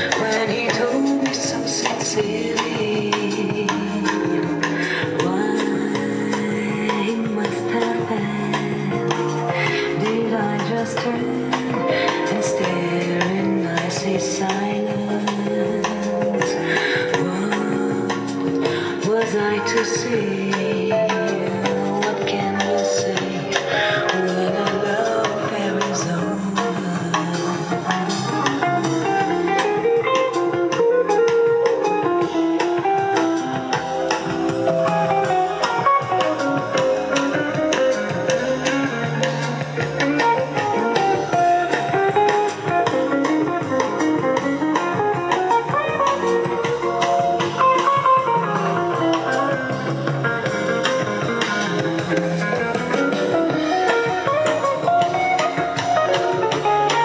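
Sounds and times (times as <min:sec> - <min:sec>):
guitar music through loudspeaker: 0:17.8 - 0:57.0.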